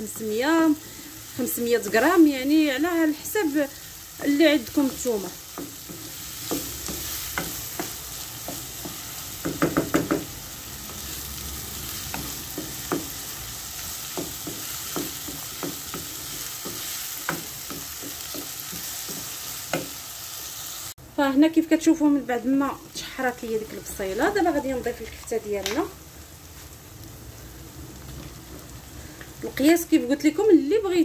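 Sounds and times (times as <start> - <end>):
onions sizzling in oil: 0.0 - 31.0
wooden spoon knocking a pot: 5.5 - 10.3, 14.1 - 19.9.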